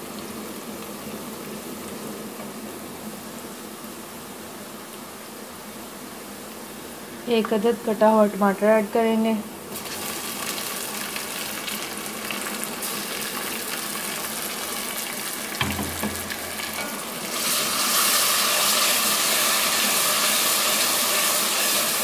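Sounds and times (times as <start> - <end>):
onions sizzling in hot oil: 0.0 - 22.0
knock: 15.6 - 16.4.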